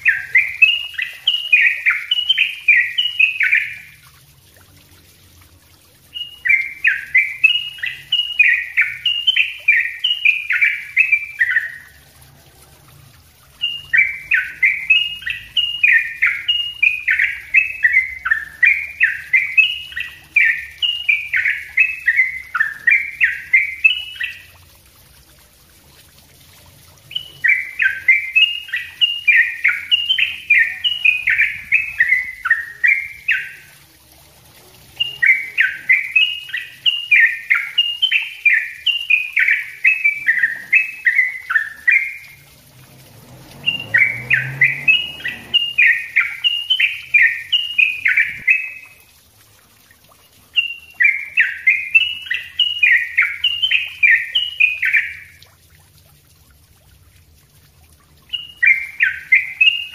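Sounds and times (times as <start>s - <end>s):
bird chattering song: 0.0s - 4.0s, 6.1s - 11.9s, 13.6s - 24.5s, 27.1s - 33.7s, 34.9s - 42.4s, 43.7s - 49.0s, 50.5s - 55.4s, 58.3s - 59.9s.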